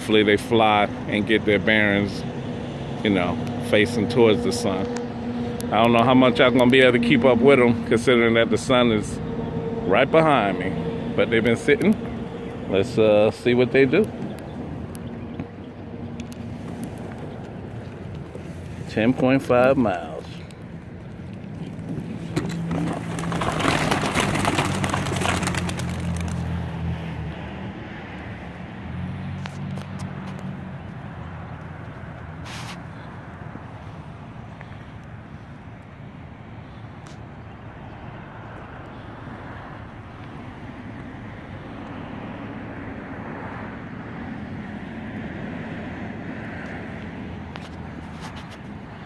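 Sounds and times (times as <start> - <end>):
vehicle passing: 0.0 - 34.8
road traffic rumble: 0.0 - 49.0
pigeon wingbeats clattering: 22.4 - 26.6.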